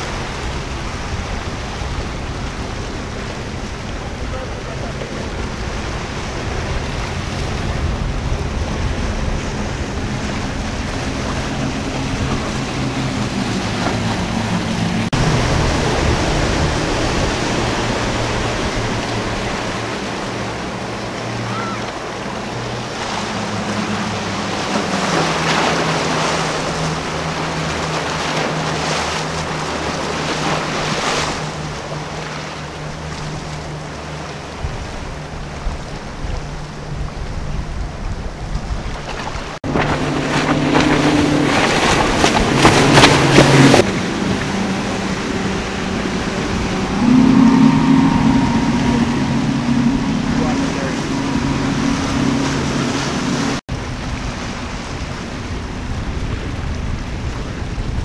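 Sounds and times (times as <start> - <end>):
outboard engines droning: 0.0 - 58.0
waves and hull spray: 0.0 - 58.0
wind on microphone: 33.0 - 58.0.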